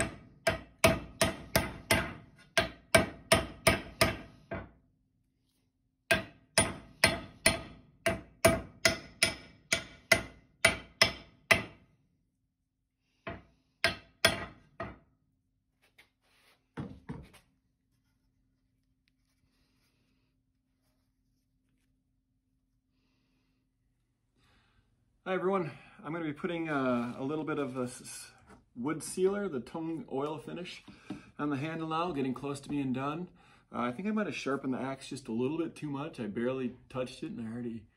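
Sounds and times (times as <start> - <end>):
hammer striking steel axe head: 6.1 - 11.8.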